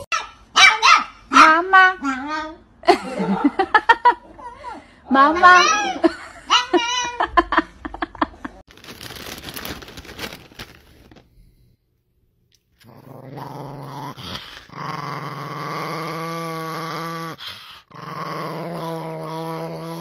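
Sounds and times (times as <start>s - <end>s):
small dog growling: 12.8s - 20.0s.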